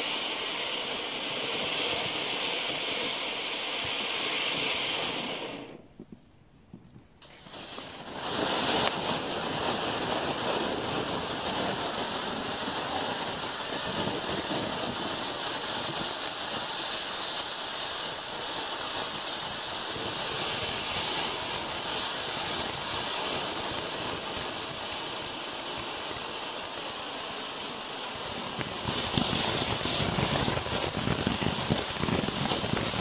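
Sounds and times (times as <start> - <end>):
firework fountain hissing sparks: 0.0 - 5.9, 7.2 - 33.0.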